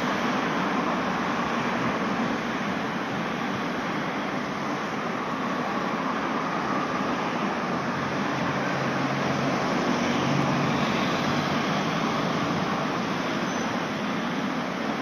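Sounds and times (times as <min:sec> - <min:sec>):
road traffic passing: 0:00.0 - 0:15.0.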